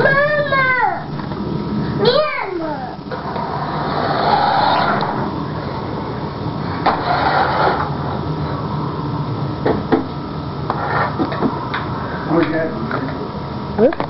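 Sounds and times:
toy car electric motor whirring: 3.2s - 5.2s, 6.8s - 7.9s.

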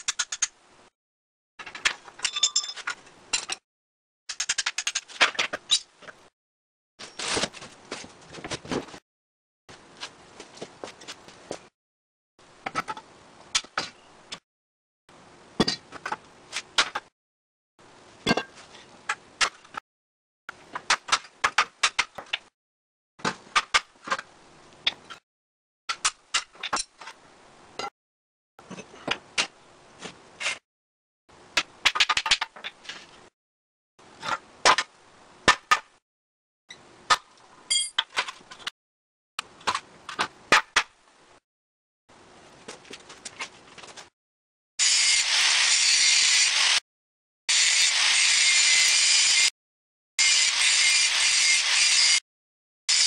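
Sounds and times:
steel leaves and tools clanking: 2.2s - 3.6s.

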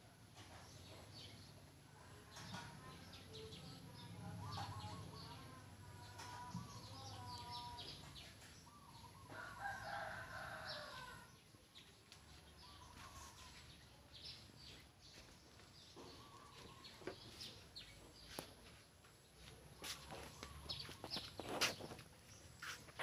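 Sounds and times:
small birds chirping: 0.3s - 23.0s
rooster crowing: 9.3s - 11.3s.

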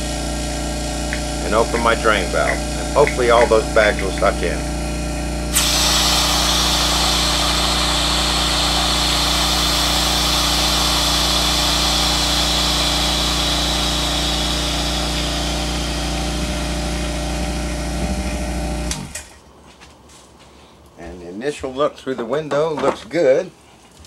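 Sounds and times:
vacuum pump humming: 0.0s - 19.3s
air hissing into chamber: 5.5s - 17.2s.

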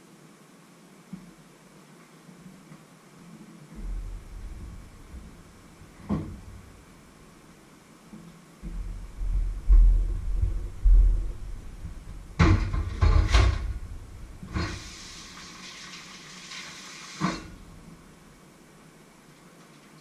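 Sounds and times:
tap water running: 14.4s - 17.9s.

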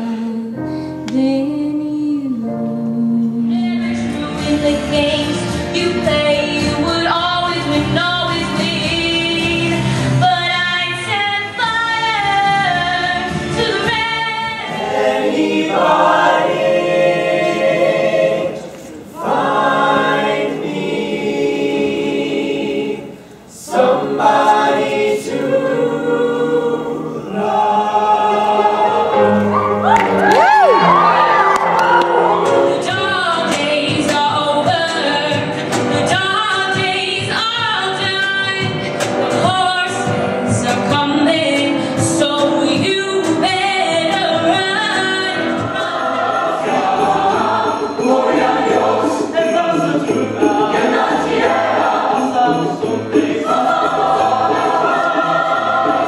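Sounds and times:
a cappella group singing: 0.0s - 0.6s, 1.2s - 29.8s, 32.2s - 56.0s.

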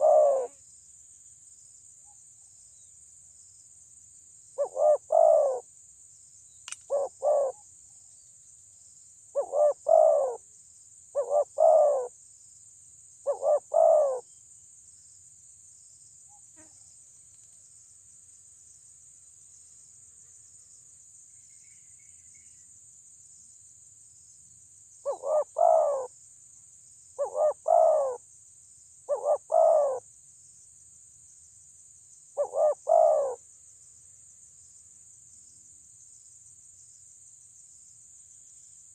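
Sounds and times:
dove cooing: 0.0s - 0.6s, 4.6s - 5.6s, 6.9s - 7.6s, 9.4s - 10.4s, 11.2s - 12.1s, 13.3s - 14.2s, 25.0s - 26.1s, 27.2s - 28.2s, 29.1s - 30.0s, 32.4s - 33.4s
high insect hiss: 0.0s - 38.9s.

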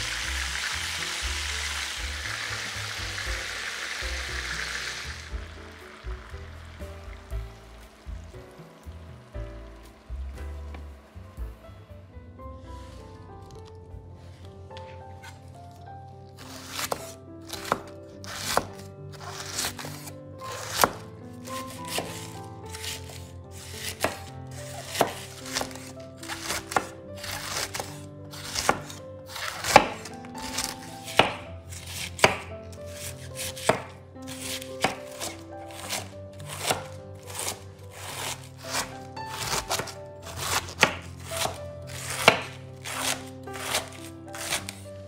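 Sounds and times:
soft background music: 0.0s - 45.0s
knife chopping on cutting board: 16.5s - 21.0s, 21.6s - 44.8s.

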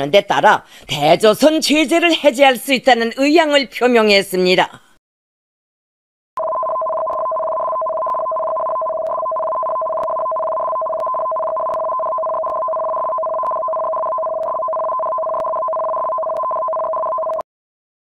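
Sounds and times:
electronic two-tone alarm: 6.4s - 17.4s.

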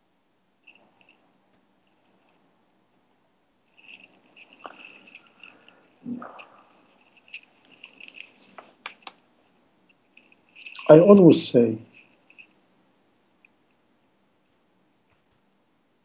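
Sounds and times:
clicks and rustling: 3.8s - 9.2s.

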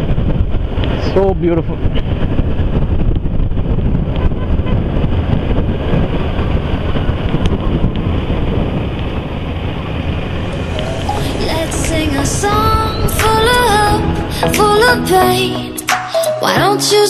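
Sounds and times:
wind buffeting microphone: 0.0s - 15.3s
motorcycle engine running: 1.8s - 14.5s.

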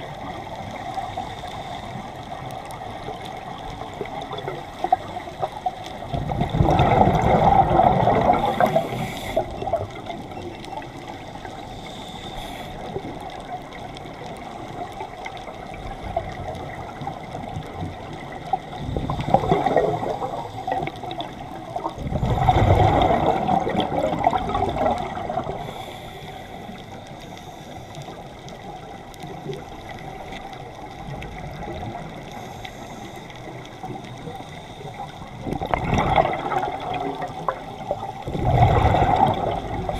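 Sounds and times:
low watery hiss: 0.0s - 39.9s
diver's exhaled bubbles underwater: 2.6s - 11.6s, 12.8s - 25.9s, 33.8s - 39.9s.

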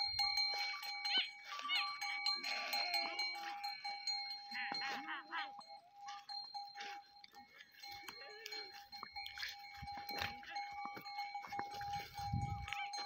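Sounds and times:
goats bleating: 1.1s - 3.8s.

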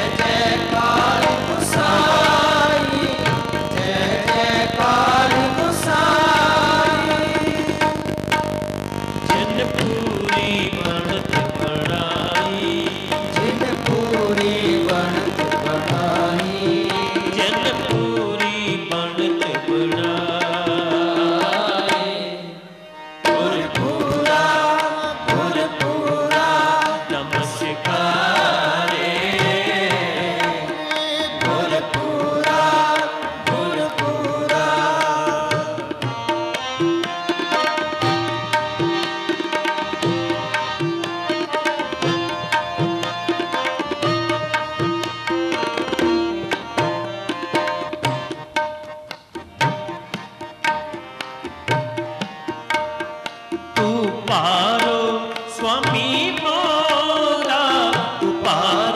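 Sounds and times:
voices singing a hymn: 0.0s - 7.8s, 23.3s - 35.6s
harmoniums: 0.0s - 58.9s
tabla strokes: 0.0s - 58.9s.

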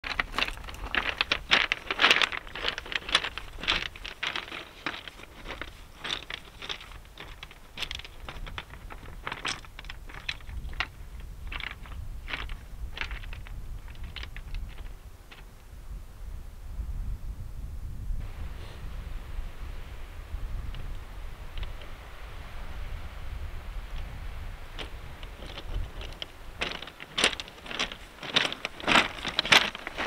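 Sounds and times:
footsteps crunching on pebbles: 0.0s - 15.5s, 24.0s - 30.0s.

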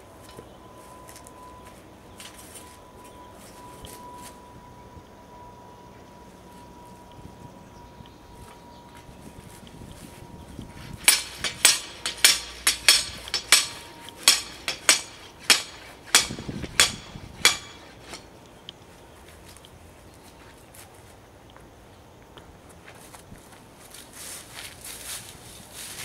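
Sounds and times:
hammer blows on metal rod: 10.8s - 18.3s.

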